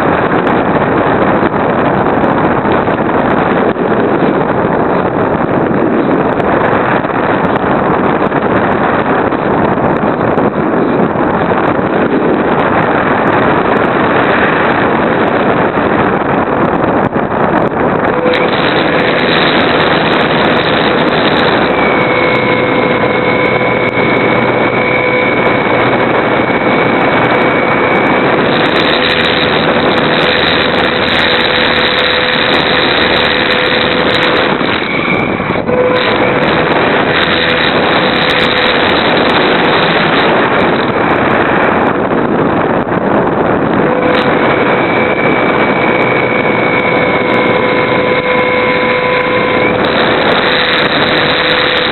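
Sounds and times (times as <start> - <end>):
model airplane motor whine: 0.0 - 51.9
wind rush over microphone: 0.0 - 51.9.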